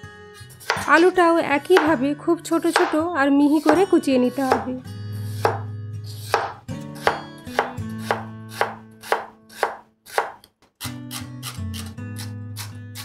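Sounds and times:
knife chopping on wooden board: 0.6 - 2.0, 2.7 - 10.5.

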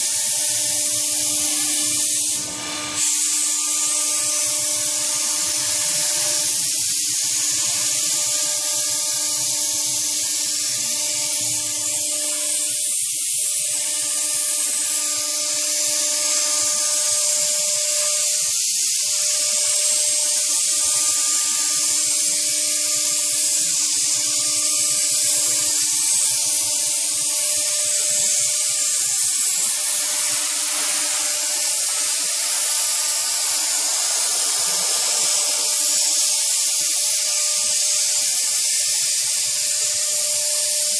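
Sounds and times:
end mill cutting foam hiss: 0.0 - 40.9
router spindle whine: 0.0 - 40.9.

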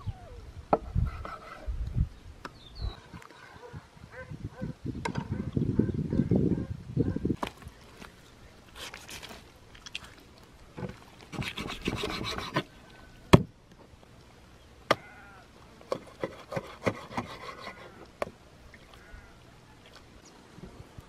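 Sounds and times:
rough rubbing and scraping: 0.9 - 1.7, 7.8 - 9.5, 10.8 - 12.7, 16.0 - 18.0.

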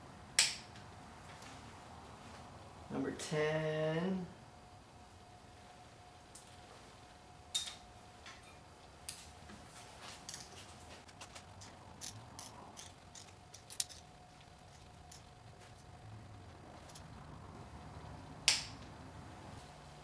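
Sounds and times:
ratcheting wrench clicking: 11.5 - 15.3.

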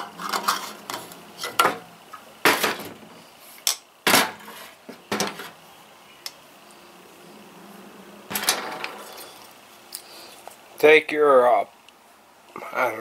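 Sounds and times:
metal parts and tools clinking: 8.3 - 10.0.

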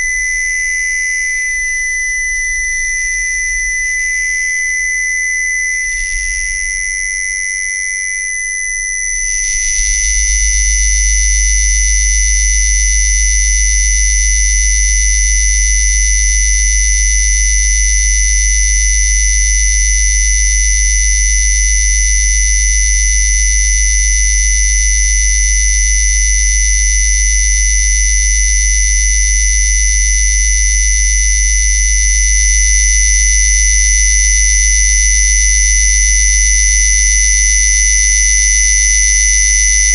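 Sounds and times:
high-pitched test tone whistle: 0.0 - 13.6.

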